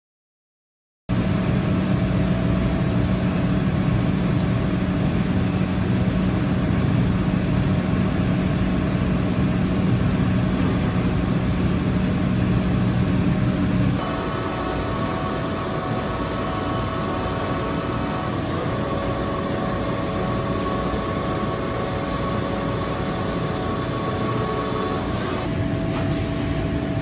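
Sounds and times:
milling machine humming: 1.2 - 27.0
coolant mist hissing: 8.6 - 25.5.

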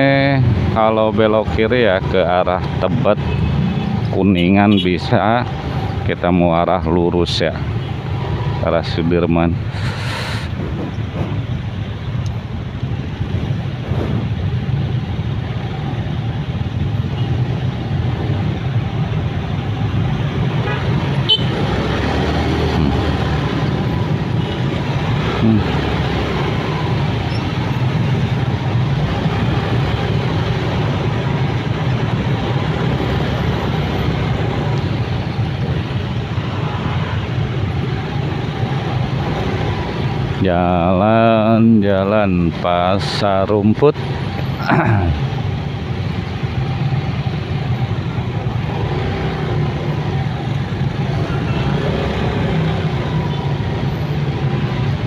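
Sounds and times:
horn toot: 20.6 - 21.6.

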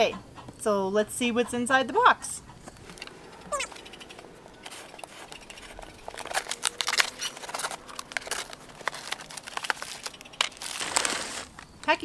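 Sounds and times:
utility knife cutting packing tape: 4.7 - 11.6.

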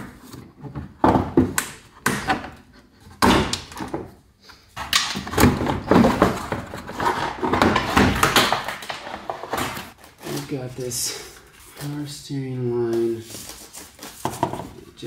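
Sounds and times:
plastic scraping and clattering: 4.8 - 10.8.

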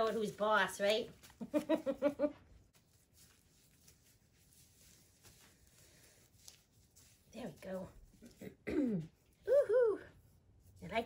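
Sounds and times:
woman's voice: 0.0 - 1.1.

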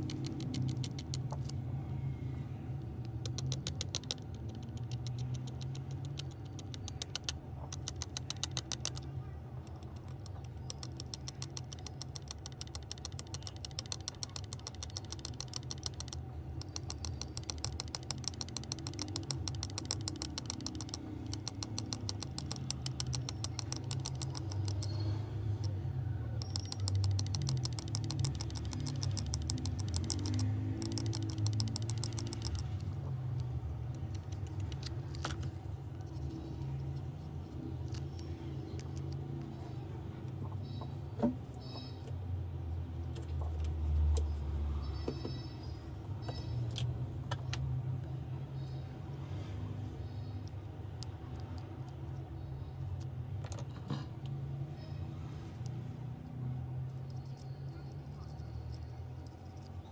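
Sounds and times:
low steady hum: 0.0 - 59.9
metal tweezers clicking and scratching: 3.0 - 39.5.

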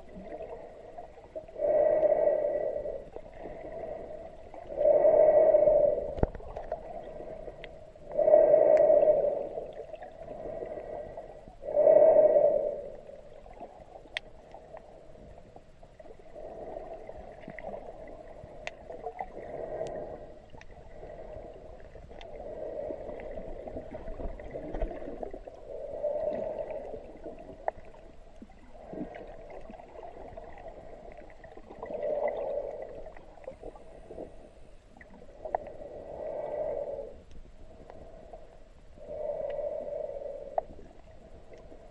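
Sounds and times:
muffled underwater swooshing: 0.0 - 41.9
faint sharp clicks: 5.6 - 7.8, 8.6 - 9.2, 14.0 - 14.9, 18.6 - 19.0, 19.8 - 20.8, 21.9 - 22.4, 37.2 - 38.1, 39.4 - 39.7, 40.4 - 41.8.

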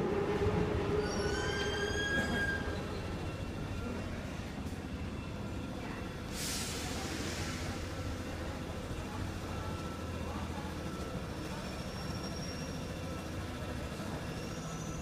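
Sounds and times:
metro train rumbling: 0.0 - 15.0
metallic wheel squeal: 1.0 - 3.0.

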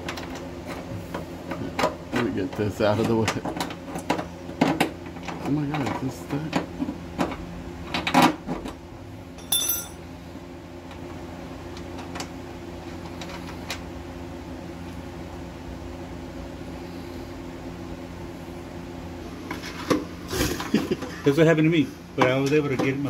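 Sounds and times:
steady low hum: 8.6 - 23.0.

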